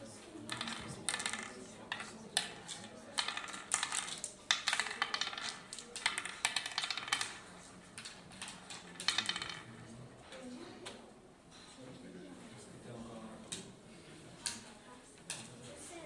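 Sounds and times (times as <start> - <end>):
game counters clicking on wooden board: 0.4 - 9.9.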